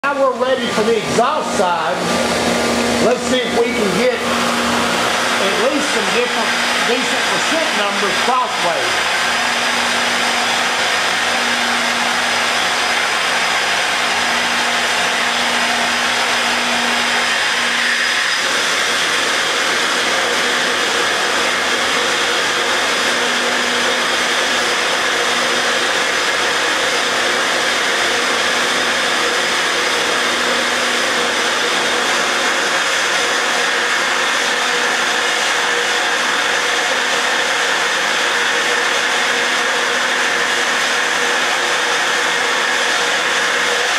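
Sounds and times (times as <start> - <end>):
loud rush of air: 1.9 - 17.8.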